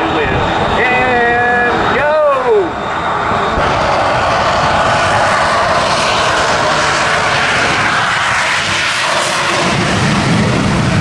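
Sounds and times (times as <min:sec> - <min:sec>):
airplane engines: 0:00.0 - 0:11.0
jet-powered truck roaring: 0:00.0 - 0:11.0.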